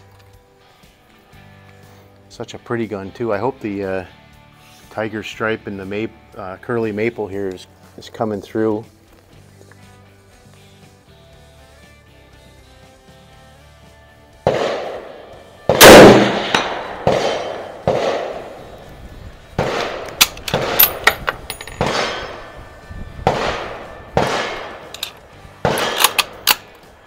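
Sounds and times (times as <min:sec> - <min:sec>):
gunshot cracks: 0:14.5 - 0:18.6, 0:19.6 - 0:21.0, 0:21.8 - 0:22.4, 0:23.2 - 0:24.9, 0:25.6 - 0:26.6
loud rifle shot with echo: 0:14.5 - 0:18.8, 0:19.6 - 0:21.0, 0:21.8 - 0:22.6, 0:23.2 - 0:24.9, 0:25.6 - 0:26.6.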